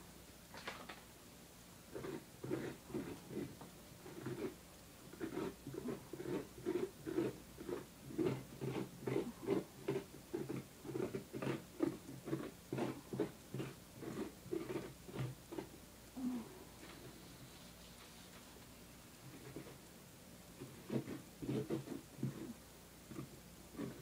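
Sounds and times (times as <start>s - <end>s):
hand scraping pumpkin pulp: 1.9s - 16.4s, 19.3s - 19.8s, 20.6s - 24.0s.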